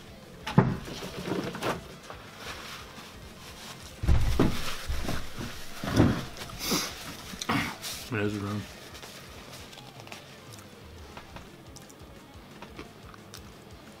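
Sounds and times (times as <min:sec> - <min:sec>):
paper towel rustling: 0:00.9 - 0:10.3
man blowing his nose: 0:06.5 - 0:08.0.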